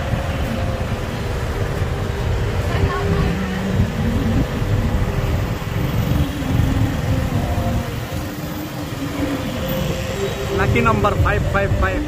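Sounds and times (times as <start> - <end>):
road and traffic rumble: 0.0 - 12.0
motorbike engine running: 2.8 - 10.9.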